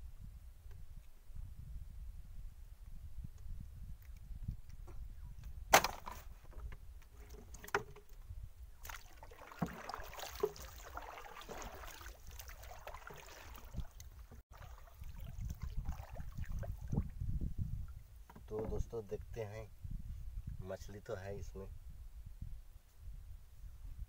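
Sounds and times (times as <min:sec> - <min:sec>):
wind rumble on microphone: 0:00.0 - 0:09.0, 0:11.5 - 0:24.0
water swishing: 0:08.8 - 0:17.1
paddle knocking on canoe: 0:09.3 - 0:14.7.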